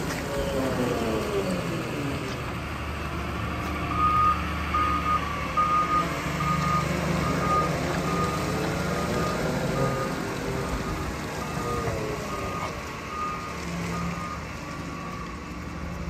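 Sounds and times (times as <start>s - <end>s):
diesel engine running: 0.0s - 16.0s
reversing alarm beeps: 3.9s - 10.2s, 10.9s - 15.4s.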